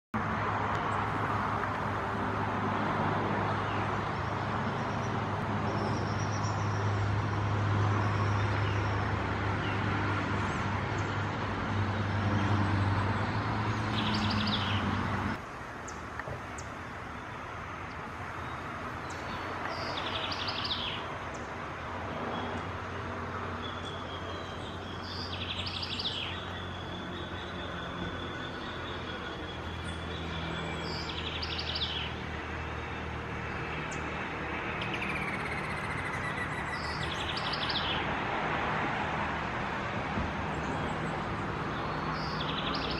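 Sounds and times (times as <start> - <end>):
small birds chirping: 12.0 - 21.6, 23.4 - 32.3, 32.9 - 38.1, 40.5 - 42.9.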